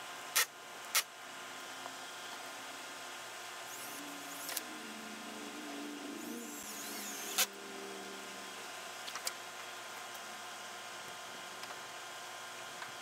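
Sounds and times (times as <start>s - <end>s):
power drill whirring: 6.2s - 7.6s.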